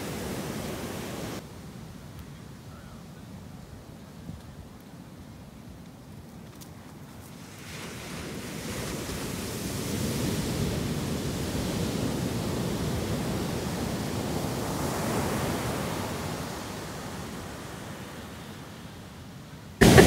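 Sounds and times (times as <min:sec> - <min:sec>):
ocean surf breaking on beach: 0:00.0 - 0:01.8, 0:07.4 - 0:19.1, 0:19.8 - 0:20.0.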